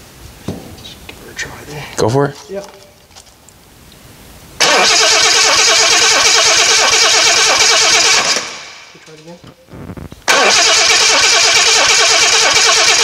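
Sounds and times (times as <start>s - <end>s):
starter motor cranking engine: 4.6s - 8.7s, 10.2s - 13.0s.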